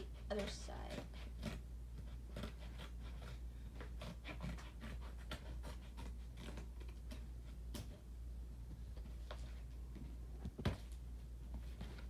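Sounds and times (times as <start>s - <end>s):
scissors cutting cardboard: 0.0s - 8.0s
steady low hum: 0.0s - 12.0s.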